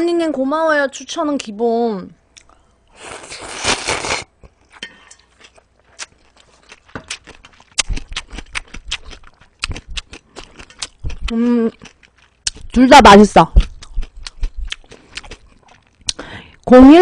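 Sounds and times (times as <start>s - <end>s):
wet chewing with mouth clicks: 2.3s - 12.8s, 13.4s - 16.7s
slurping noodles: 3.0s - 4.3s.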